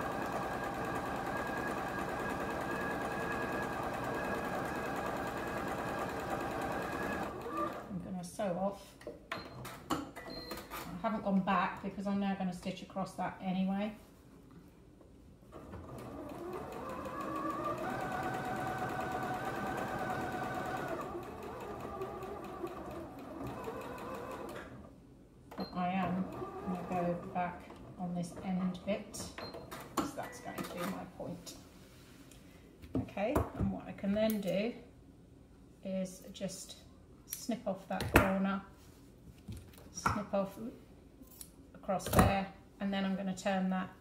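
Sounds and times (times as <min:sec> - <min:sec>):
sewing machine running: 0:00.0 - 0:07.9, 0:15.6 - 0:24.8, 0:26.0 - 0:27.4.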